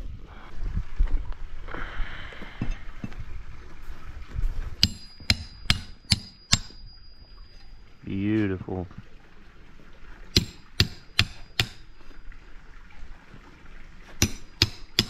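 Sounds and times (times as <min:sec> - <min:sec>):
hammer striking metal tool: 0:04.8 - 0:06.9, 0:10.4 - 0:11.8.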